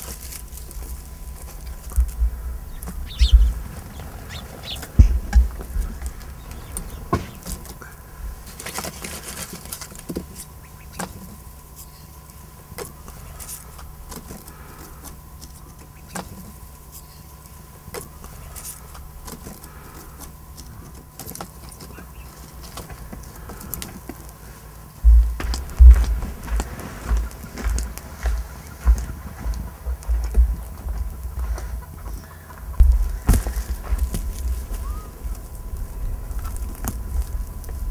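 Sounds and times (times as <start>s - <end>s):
loud low rumble: 0.0s - 8.7s, 24.9s - 37.9s
low hum: 0.0s - 37.9s
twig fire crackling: 0.0s - 37.9s.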